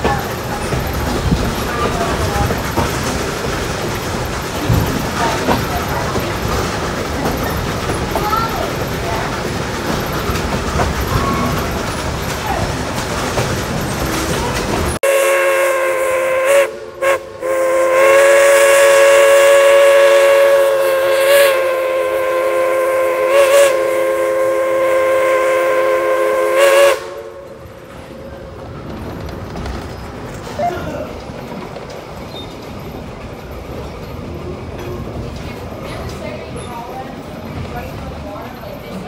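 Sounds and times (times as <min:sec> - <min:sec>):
steam train rumbling: 0:00.0 - 0:39.0
steam locomotive chime whistle: 0:15.0 - 0:27.6.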